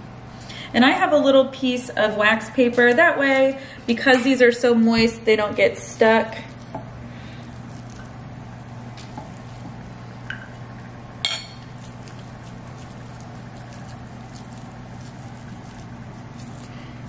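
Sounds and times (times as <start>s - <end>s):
steady low hum: 0.0s - 17.0s
kitchenware clinking: 11.2s - 11.8s.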